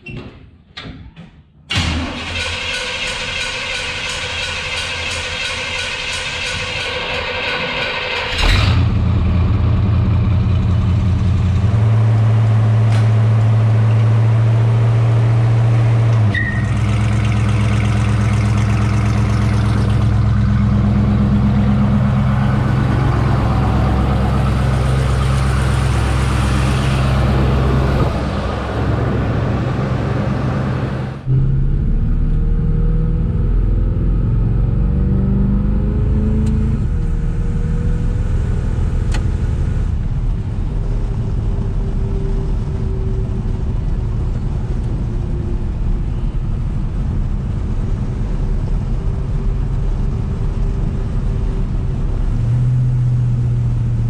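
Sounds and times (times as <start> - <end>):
pickup truck engine running: 2.2 - 33.5
road and wind noise: 6.0 - 54.0.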